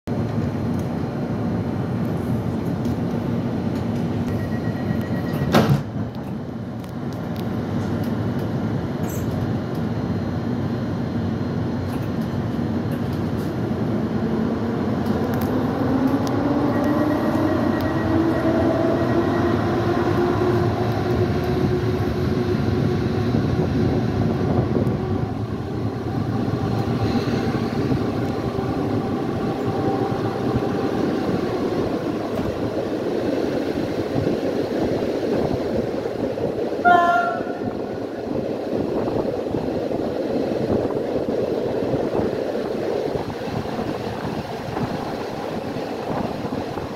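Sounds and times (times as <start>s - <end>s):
train wheels rumbling on rails: 0.1s - 46.9s
train whine rising in pitch: 3.4s - 5.6s, 12.6s - 46.9s.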